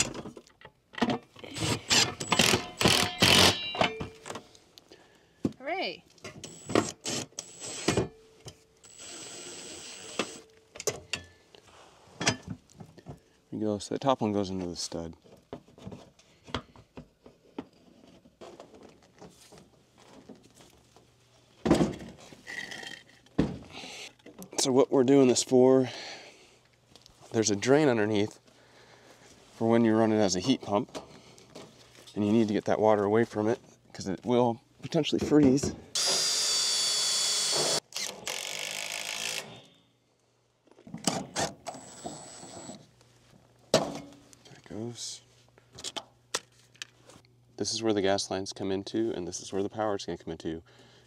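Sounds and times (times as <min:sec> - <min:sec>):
power drill whirring: 0:01.6 - 0:03.6, 0:06.4 - 0:08.0, 0:08.8 - 0:10.5, 0:36.0 - 0:39.6, 0:41.3 - 0:42.8
handling and rustling: 0:14.6 - 0:23.4, 0:28.2 - 0:32.8.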